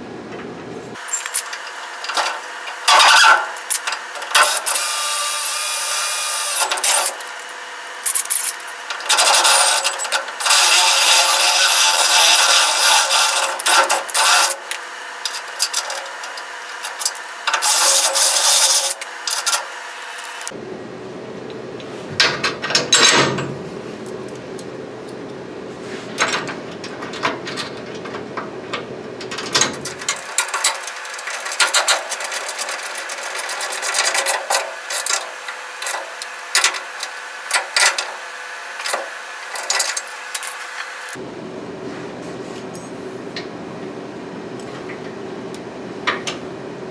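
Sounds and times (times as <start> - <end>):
cordless drill boring into steel: 4.4 - 7.4, 8.1 - 14.6.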